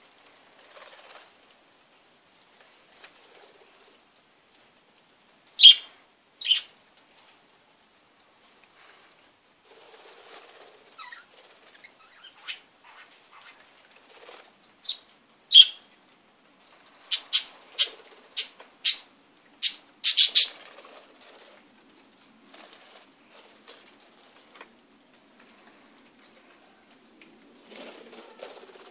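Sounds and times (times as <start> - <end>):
wing flaps: 0.5 - 1.4, 9.7 - 11.9, 13.3 - 14.6, 20.2 - 21.7, 22.4 - 24.6, 27.5 - 28.9
budgerigars chirping: 5.6 - 5.8, 17.1 - 19.0, 19.6 - 20.5.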